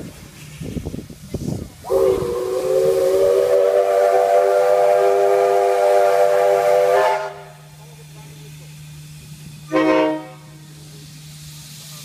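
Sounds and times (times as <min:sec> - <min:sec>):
steam locomotive whistle: 0:01.8 - 0:07.6, 0:09.7 - 0:10.6.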